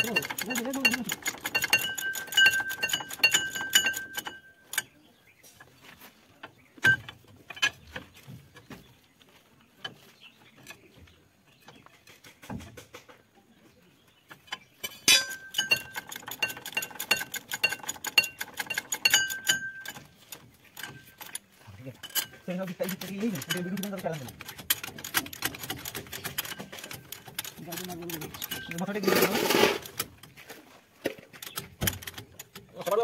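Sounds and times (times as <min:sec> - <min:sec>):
ratchet wrench clicking: 0:00.0 - 0:04.9, 0:14.8 - 0:21.4, 0:22.0 - 0:30.1
light metal clinks: 0:00.0 - 0:05.0, 0:14.5 - 0:29.0.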